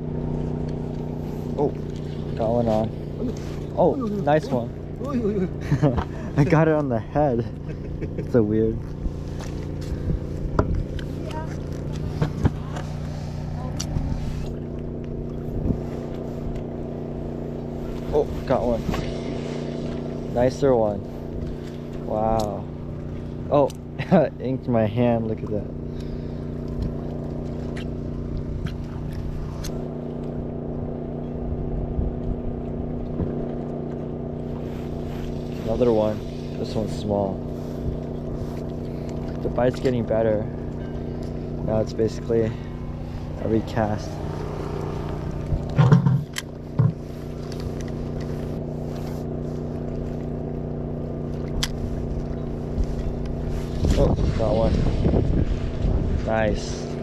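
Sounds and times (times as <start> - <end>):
engine hum: 0.0 - 57.0
low handling bump: 42.6 - 47.2.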